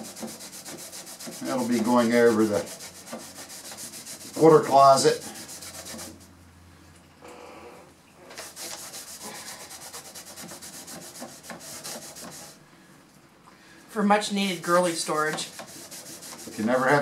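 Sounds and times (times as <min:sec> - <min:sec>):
cloth rubbing wood: 0:00.0 - 0:06.3, 0:08.3 - 0:12.6, 0:14.7 - 0:17.0.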